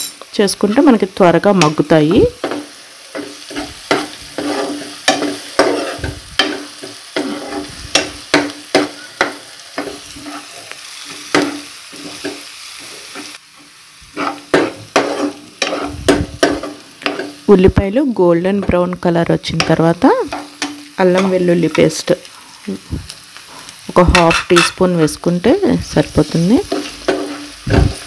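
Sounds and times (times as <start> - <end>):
onions sizzling in oil: 0.0 - 28.0
spoon scraping pan: 2.4 - 13.4, 14.1 - 17.4, 23.6 - 25.3, 26.0 - 28.0.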